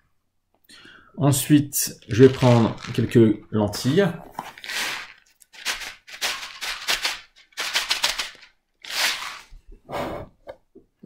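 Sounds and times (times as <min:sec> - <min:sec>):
dry lentils rattling in packet: 0:01.9 - 0:09.5.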